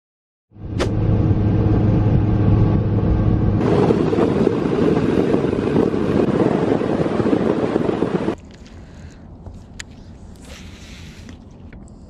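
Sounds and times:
outboard motor running: 3.6 - 9.1.

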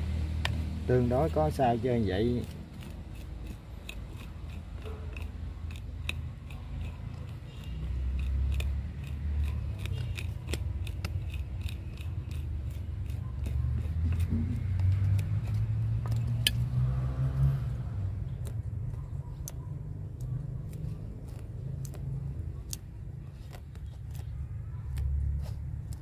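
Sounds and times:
pruning shears snipping: 2.1 - 17.4.

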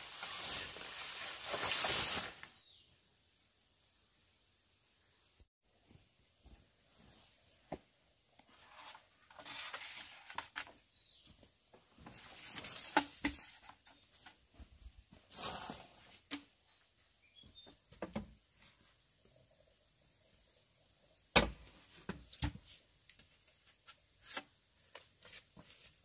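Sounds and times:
rustling and swishing: 0.0 - 2.6, 11.9 - 16.3
faint high chirps: 15.8 - 17.8.

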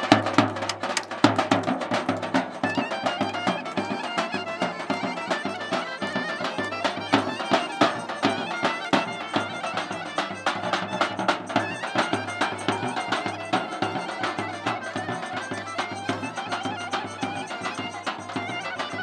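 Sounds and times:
large drum beating steadily: 0.0 - 19.0
accordion: 1.9 - 19.0
clarinet playing quick runs: 2.7 - 19.0.

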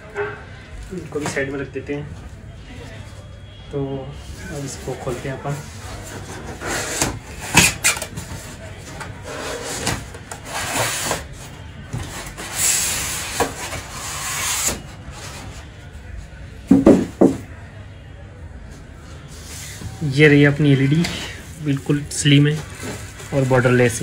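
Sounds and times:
scraping on cardboard: 5.6 - 15.7
loud knocks: 16.7 - 17.5.

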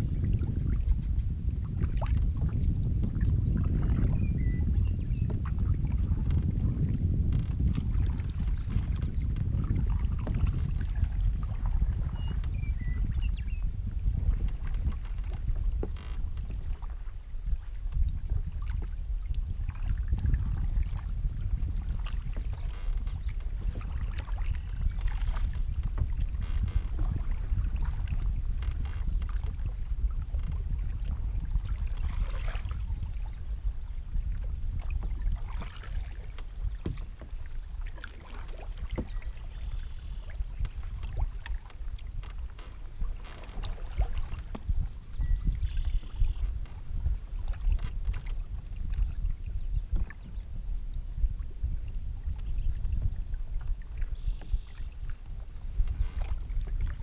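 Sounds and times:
wind rumble on microphone: 0.0 - 57.0
paddles splashing in water: 14.1 - 33.4, 34.3 - 50.2.

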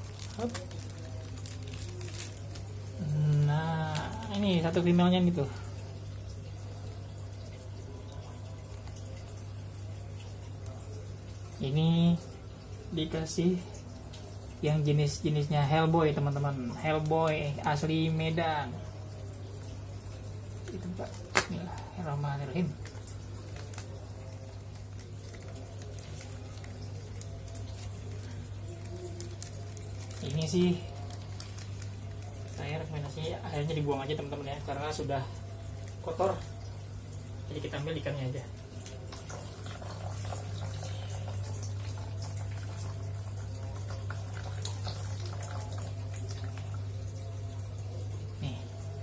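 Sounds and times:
plastic bag crinkling: 0.0 - 4.7, 22.7 - 33.2.

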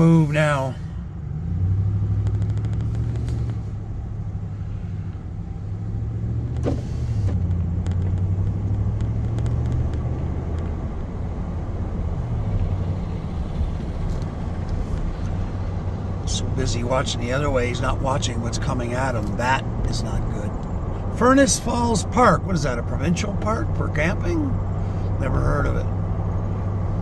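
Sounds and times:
road noise: 0.0 - 27.0
truck engine accelerating: 0.0 - 27.0.

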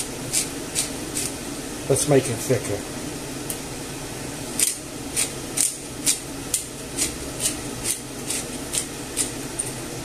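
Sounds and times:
pepper grinder grinding: 4.6 - 9.7.

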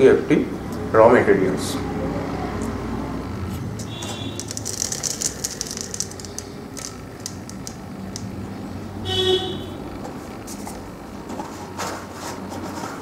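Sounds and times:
horn honk: 3.8 - 4.6, 9.0 - 9.9
seeds rattling in plastic jar: 3.8 - 8.4.

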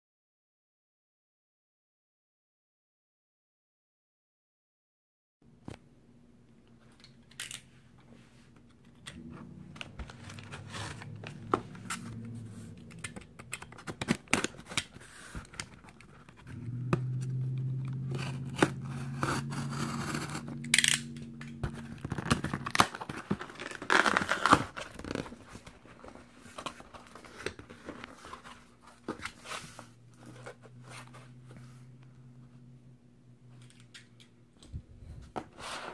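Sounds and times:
low steady hum: 5.4 - 35.9
cardboard flaps rustling: 9.3 - 16.6
tape tearing: 12.8 - 16.5, 17.9 - 25.7.

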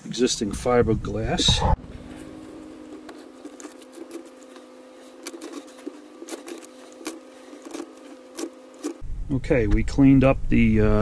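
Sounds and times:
steady hum: 0.0 - 9.6
utility knife cutting carpet: 1.4 - 9.0.

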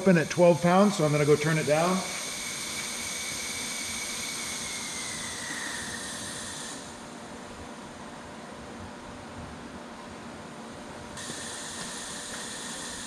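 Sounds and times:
compressed air hissing: 0.0 - 7.0, 11.2 - 13.0.

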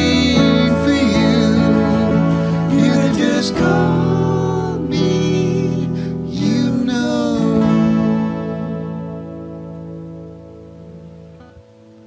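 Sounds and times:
man singing: 0.0 - 8.8
acoustic guitars strumming: 0.0 - 12.0.

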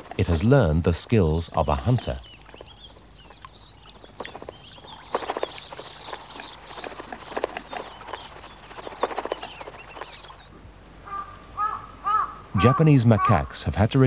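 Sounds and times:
wing flutters: 0.0 - 0.5, 1.5 - 10.5
low steady bird call: 0.0 - 13.5
birds chattering and chirping: 0.0 - 13.9.

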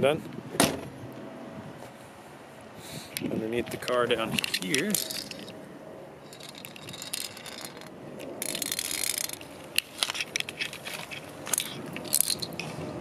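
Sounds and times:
camera handling rustling: 6.4 - 12.8.

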